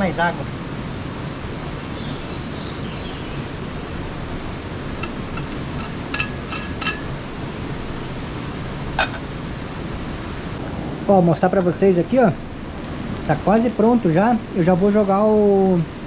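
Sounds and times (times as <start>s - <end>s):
gas stove hissing: 3.5s - 15.8s
metal clinks: 5.0s - 7.2s
pan lid clink: 5.0s - 7.2s, 9.0s - 9.3s.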